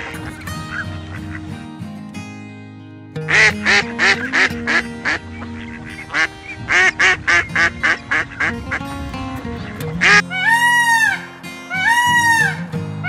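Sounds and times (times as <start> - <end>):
duck quacking: 0.0 - 1.5, 3.3 - 8.9, 9.6 - 12.7
background music with held notes: 0.0 - 13.0.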